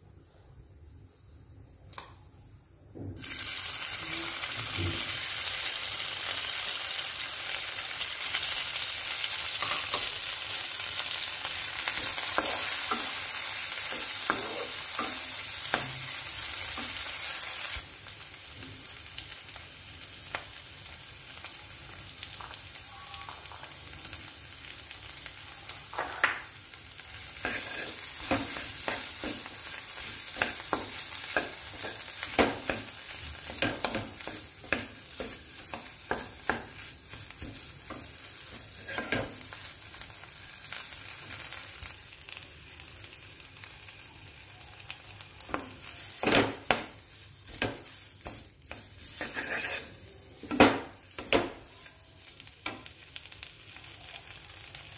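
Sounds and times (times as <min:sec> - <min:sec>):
oil sizzling in frying pan: 0:03.2 - 0:54.9
spatula scraping and tapping pan: 0:27.4 - 0:39.4, 0:45.5 - 0:51.6.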